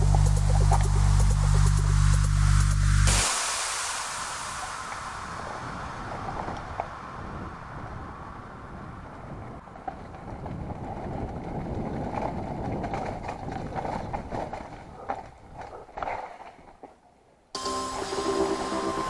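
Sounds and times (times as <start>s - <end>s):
wind on microphone: 0.0s - 15.9s
bike tyres rumbling on dirt: 8.3s - 16.7s
bike knocking and rattling: 9.6s - 16.8s.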